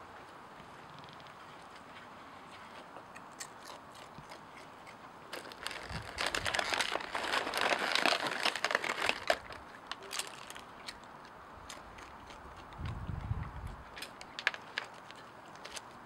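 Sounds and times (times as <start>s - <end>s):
animal crunching potato chips: 0.6s - 13.0s, 13.6s - 16.0s.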